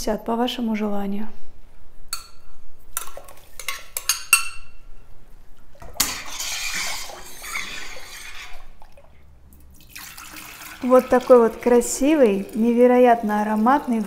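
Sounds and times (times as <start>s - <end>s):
metal spoon tapping glass bowl: 3.7s - 4.7s
liquid swishing as stirred: 5.7s - 14.0s.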